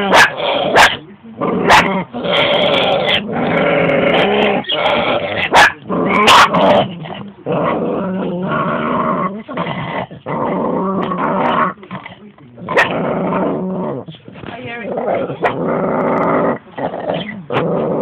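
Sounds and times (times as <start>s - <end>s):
dogs growling: 0.0s - 18.0s
dog barking: 0.1s - 1.0s, 1.7s - 1.9s, 5.5s - 6.6s.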